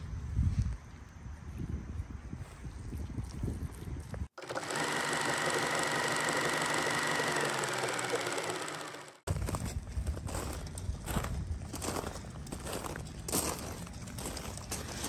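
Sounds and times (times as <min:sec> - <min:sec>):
fast mechanical rattle: 0:04.4 - 0:09.5.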